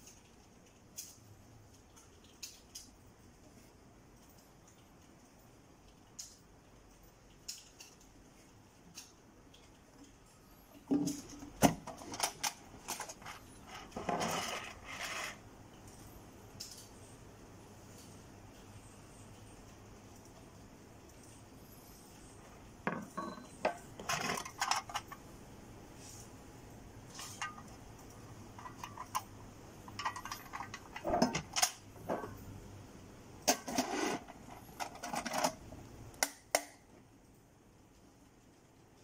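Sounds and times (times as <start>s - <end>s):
metal lunch box clattering: 11.0s - 14.8s, 24.0s - 25.2s, 29.9s - 32.4s, 33.5s - 35.6s.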